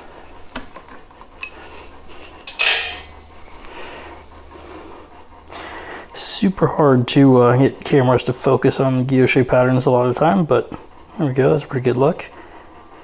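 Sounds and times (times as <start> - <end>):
metal clinks and rattles: 2.4 - 3.2.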